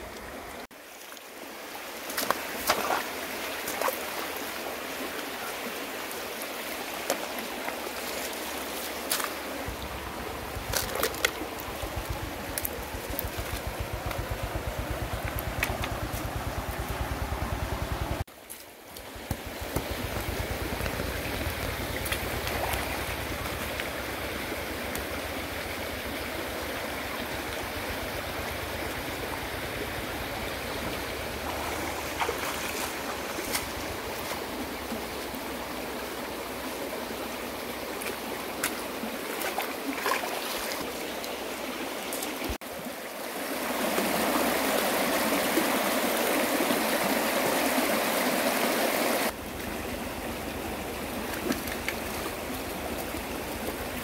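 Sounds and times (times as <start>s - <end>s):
stream flowing: 0.0s - 54.0s
small clicks and splashes: 2.0s - 4.2s, 7.0s - 17.0s, 20.0s - 25.2s, 38.0s - 40.8s, 51.2s - 53.9s.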